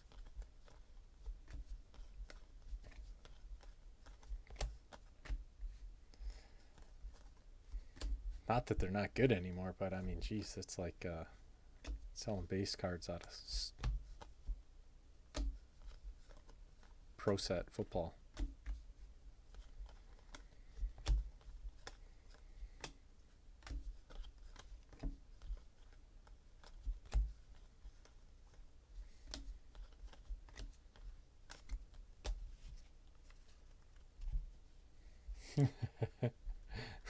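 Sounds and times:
cards flipping and snapping: 0.0 - 5.8, 6.4 - 8.3, 13.2 - 14.6, 15.3 - 17.5, 18.3 - 34.3.

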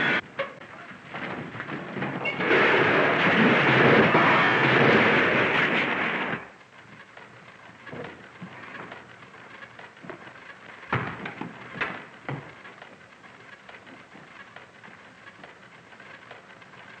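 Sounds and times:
scattered clunks and knocks: 0.0 - 17.0
car crashing onto wooden floor: 1.1 - 6.5.

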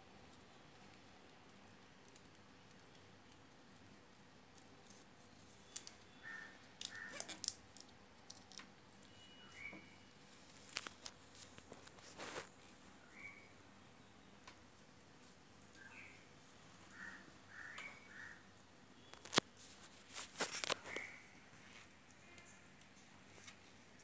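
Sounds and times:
tape rustling and crinkling: 0.2 - 12.8, 19.1 - 24.0.

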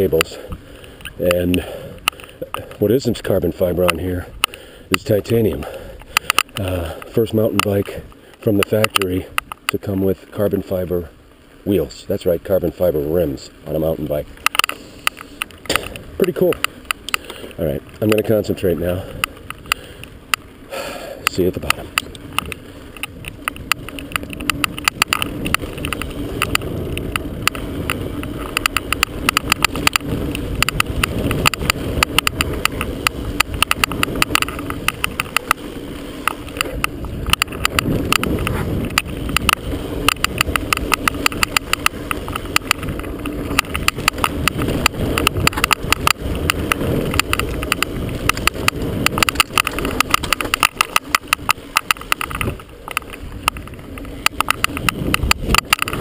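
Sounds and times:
bike tyres on dirt rumbling: 0.0 - 56.0
wind: 0.0 - 56.0.

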